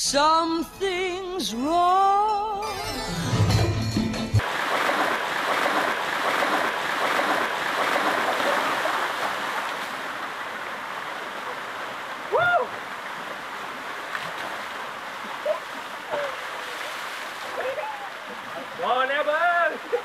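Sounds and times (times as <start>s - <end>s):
water splashing from buckets: 4.4s - 20.0s.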